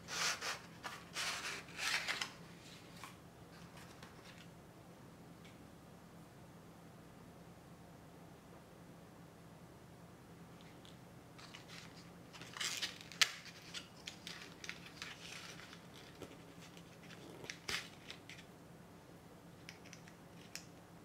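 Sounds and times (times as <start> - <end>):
paper packaging rustling: 0.0 - 4.5, 11.4 - 18.5.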